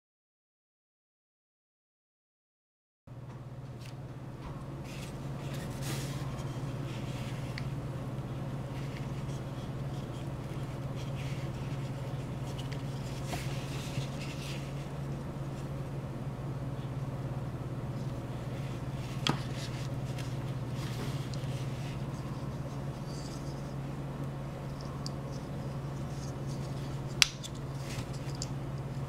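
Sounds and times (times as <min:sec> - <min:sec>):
steady low hum: 0:03.1 - 0:29.0
phone case rubbing and clicking: 0:08.7 - 0:15.0.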